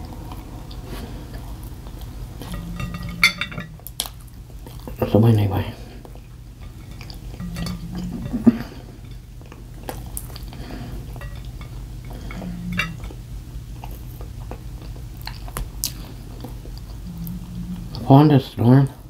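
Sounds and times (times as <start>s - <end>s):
dishes and cutlery clinking: 2.4s - 4.1s, 6.6s - 13.2s
person chewing: 13.8s - 18.0s.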